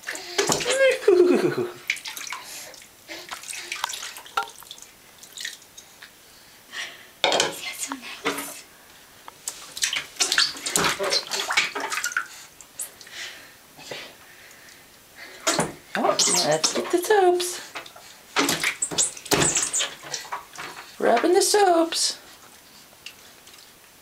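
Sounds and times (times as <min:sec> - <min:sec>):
water splashing in plastic tub: 0:00.1 - 0:05.8, 0:09.4 - 0:12.9, 0:15.4 - 0:21.8.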